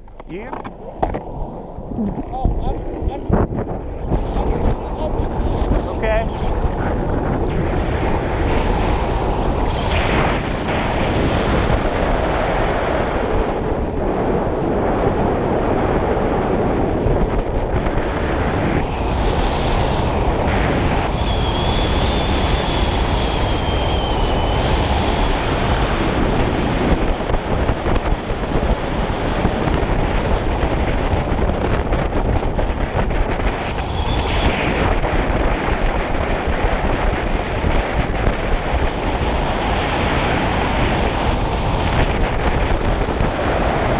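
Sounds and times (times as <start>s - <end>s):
wind on microphone: 0.0s - 43.9s
faint high whistle tone: 21.2s - 24.7s.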